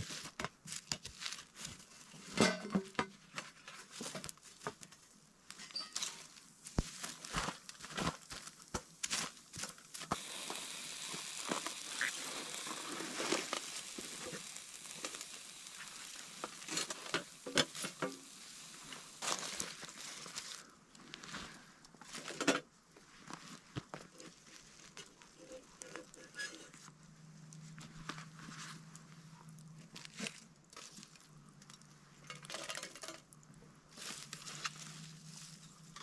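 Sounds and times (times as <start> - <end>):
dry leaves crinkling: 0.0 - 2.3, 6.0 - 22.3, 27.6 - 33.2, 33.9 - 36.0
steady hiss: 5.5 - 21.8.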